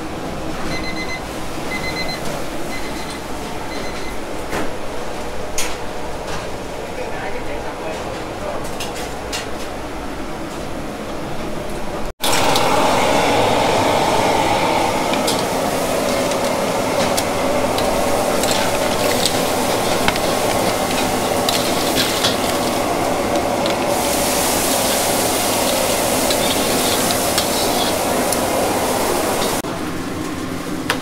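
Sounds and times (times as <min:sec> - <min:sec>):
food sizzling: 0:12.2 - 0:30.8
utensils clinking and scraping: 0:15.2 - 0:28.4.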